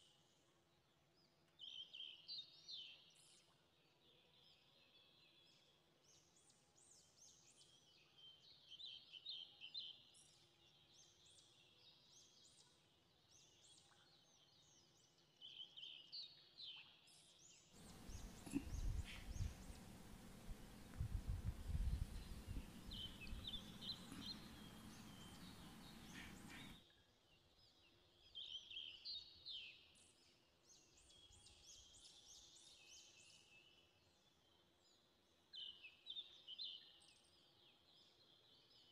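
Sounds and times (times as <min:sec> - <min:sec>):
faint birds chirping: 0:17.4 - 0:26.9
rumbling noise with thumps: 0:20.4 - 0:24.0.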